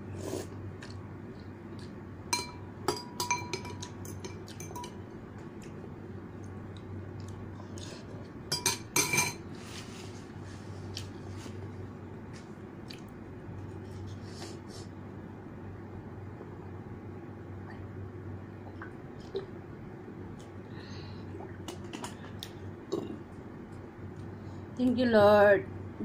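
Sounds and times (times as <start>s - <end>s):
cutlery clinking on ceramic bowl: 2.4s - 5.0s, 8.5s - 9.4s.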